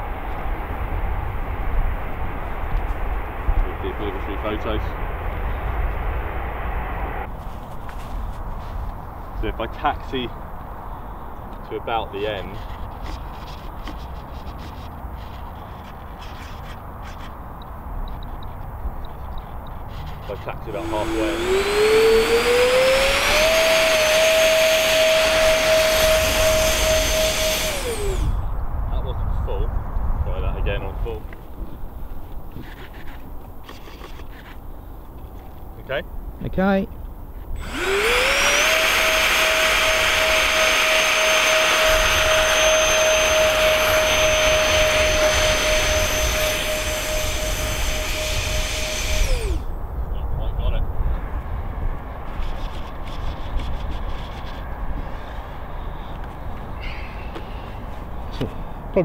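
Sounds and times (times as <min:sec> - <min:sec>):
electric ducted fans whining: 0:20.5 - 0:29.6, 0:37.6 - 0:50.6.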